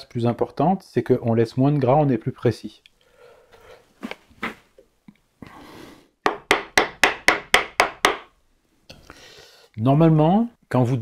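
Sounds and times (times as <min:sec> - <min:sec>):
mallet striking wood chisel: 0:06.2 - 0:08.3.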